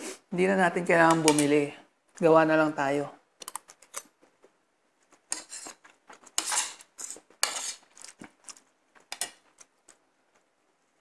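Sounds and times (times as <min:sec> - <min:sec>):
cutlery scraping a plate: 0:05.3 - 0:08.2.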